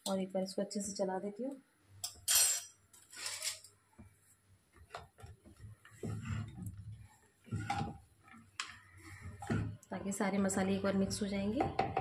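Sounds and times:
spatula tapping and scraping pot: 0:04.8 - 0:09.8, 0:11.0 - 0:12.0.

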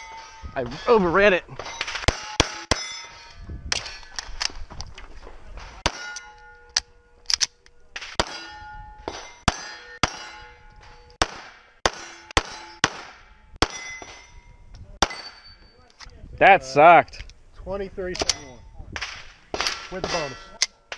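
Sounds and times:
steel plate ringing: 0:00.0 - 0:04.2, 0:05.8 - 0:07.2, 0:08.0 - 0:15.8, 0:19.7 - 0:20.9
pistol shots: 0:08.0 - 0:08.4, 0:11.2 - 0:14.1.

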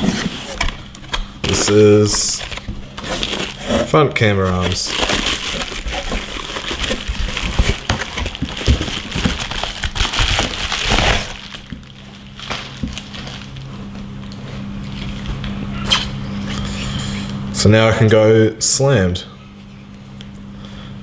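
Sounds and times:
bubble wrap crinkling: 0:00.0 - 0:16.0.

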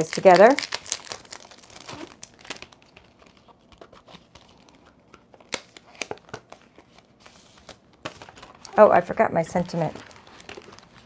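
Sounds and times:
paper rustling: 0:09.7 - 0:11.0.

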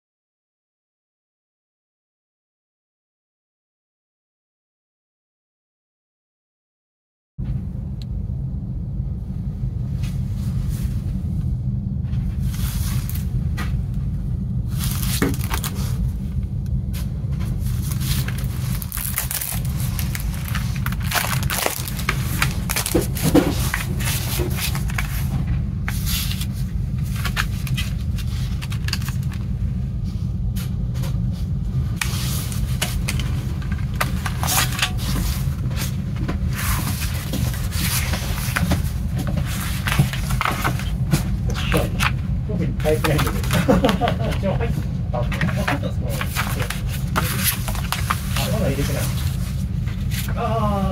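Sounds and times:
steady low hum: 0:07.4 - 0:50.9
cellophane crinkling and tearing: 0:14.8 - 0:16.0, 0:17.8 - 0:25.3, 0:26.0 - 0:29.4, 0:45.5 - 0:50.3.

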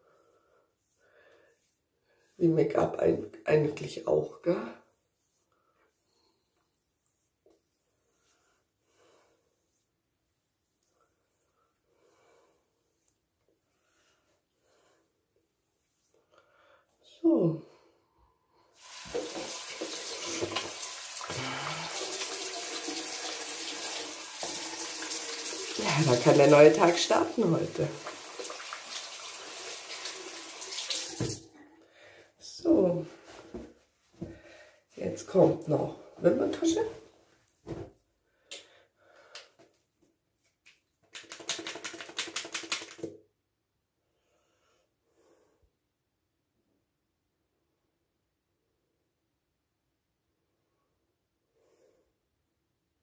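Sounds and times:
water running into a sink: 0:18.8 - 0:31.5
rapid clicking or rattling: 0:41.1 - 0:43.1.

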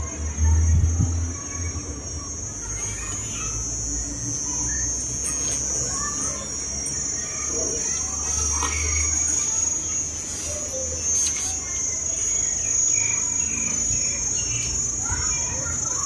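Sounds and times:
insects droning: 0:00.0 - 0:16.0
bird chirps: 0:04.5 - 0:16.0.

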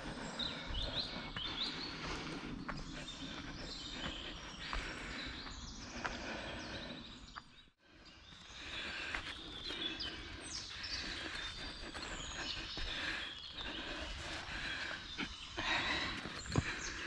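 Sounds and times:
woodland birds singing: 0:00.0 - 0:17.0.

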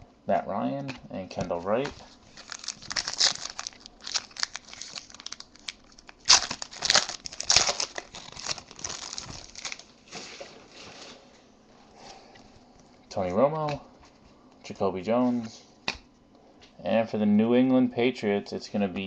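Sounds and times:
foil wrapper tearing and crinkling: 0:02.3 - 0:09.9.

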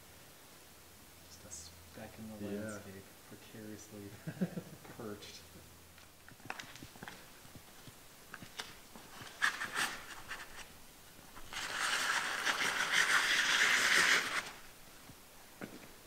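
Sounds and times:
sliding scrape on rock: 0:11.4 - 0:14.6.

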